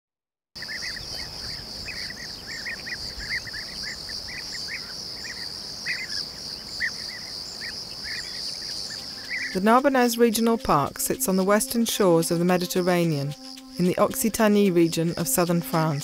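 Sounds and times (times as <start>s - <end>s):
bird chirps: 0.6s - 16.0s
insect chirring: 0.6s - 16.0s.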